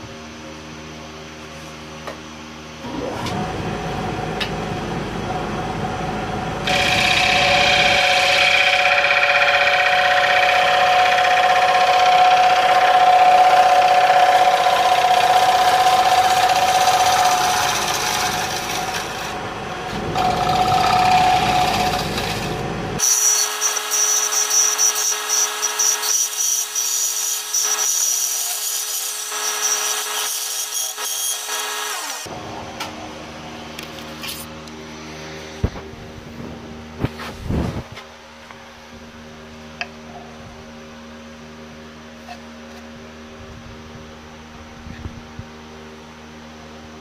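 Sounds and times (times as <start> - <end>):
wood lathe humming: 2.9 - 32.4.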